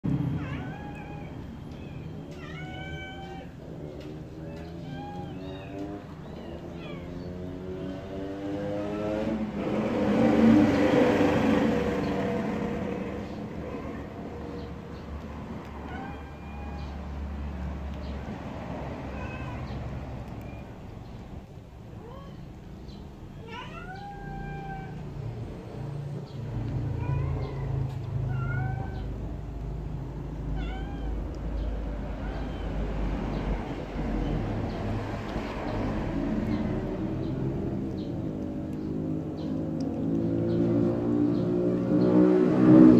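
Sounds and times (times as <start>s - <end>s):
vehicle engine passing by: 0.0s - 42.9s
kitten meowing: 0.2s - 3.6s, 4.4s - 7.3s, 15.7s - 17.2s, 19.0s - 20.9s, 23.3s - 25.2s, 26.6s - 29.3s, 30.2s - 34.4s
kitten mewing: 23.3s - 25.2s, 26.6s - 34.5s.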